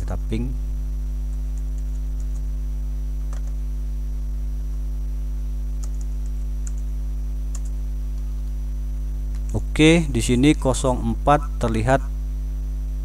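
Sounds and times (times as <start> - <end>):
electrical hum: 0.0 - 13.0
keyboard keys clicking: 1.3 - 2.5, 3.3 - 3.6, 5.8 - 6.8, 7.5 - 7.7.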